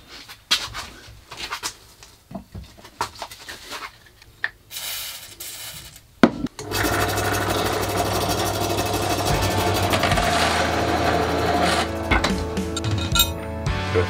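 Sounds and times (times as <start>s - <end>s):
drill press running: 6.6s - 12.9s.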